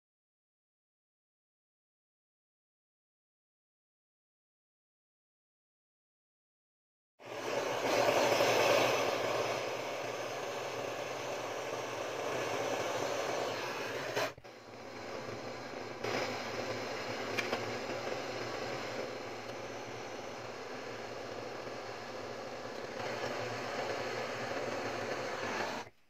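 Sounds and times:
gas torch flame hissing: 7.2s - 26.0s.

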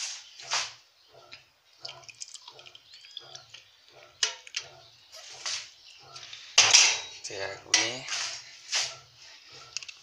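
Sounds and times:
kitchenware clattering in a steel sink: 4.2s - 4.6s, 6.6s - 7.2s.

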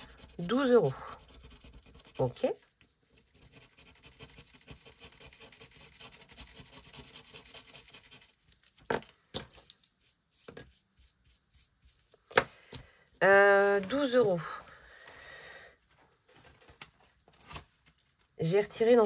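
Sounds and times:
rubbing and scratching on paper: 0.0s - 8.8s, 10.0s - 12.2s.

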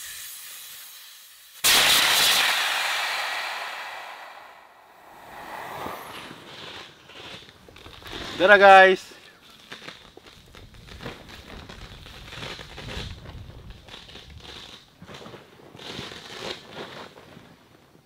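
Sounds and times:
tent fabric rustling and crinkling: 9.4s - 18.0s.

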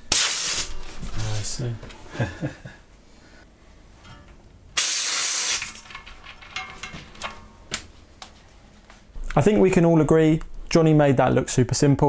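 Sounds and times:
air hissing from tire valve: 0.1s - 0.7s, 4.8s - 5.7s.

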